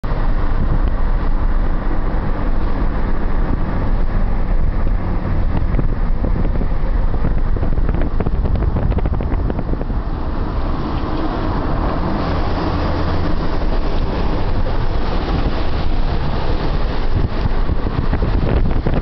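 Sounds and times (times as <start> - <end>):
car driving rumble: 0.0 - 19.0
wind on microphone: 0.0 - 19.0.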